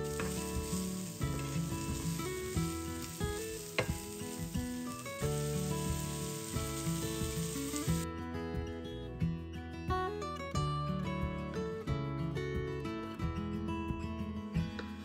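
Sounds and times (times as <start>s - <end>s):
food sizzling in frying pan: 0.0s - 8.0s
acoustic guitar music: 0.0s - 15.0s.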